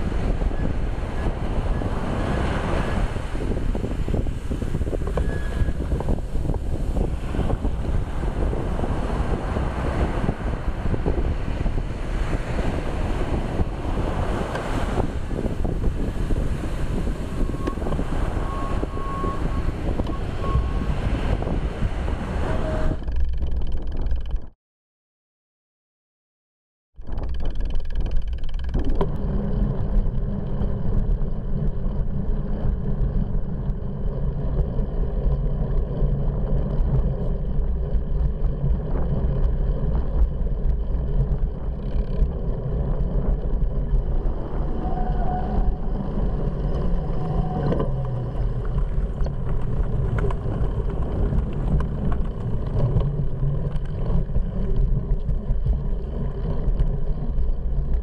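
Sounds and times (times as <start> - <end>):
wind buffeting: 0.0 - 24.5, 27.0 - 58.0
small clicks and rattles: 23.0 - 24.5, 27.0 - 44.4, 46.7 - 58.0.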